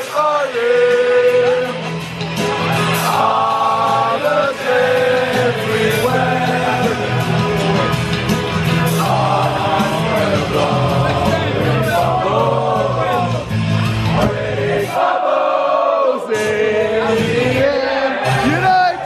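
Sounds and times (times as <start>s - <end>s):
song with sung vocals: 0.0s - 19.0s
steady bass line: 0.7s - 14.9s.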